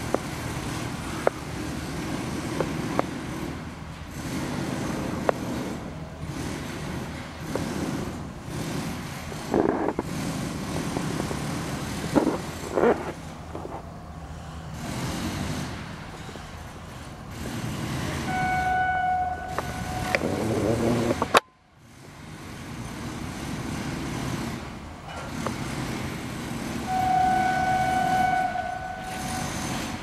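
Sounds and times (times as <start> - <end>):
continuous low rumble: 0.0 - 30.0
locomotive horn blasts: 18.1 - 21.4, 26.8 - 30.0.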